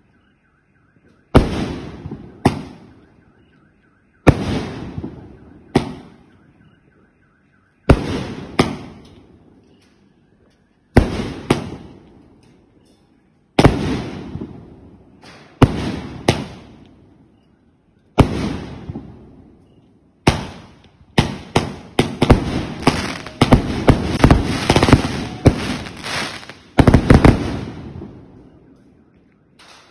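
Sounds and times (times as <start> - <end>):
fireworks bangs: 1.2 - 3.2, 4.2 - 6.3, 7.8 - 9.6, 10.9 - 12.2, 13.6 - 17.1, 18.2 - 29.9.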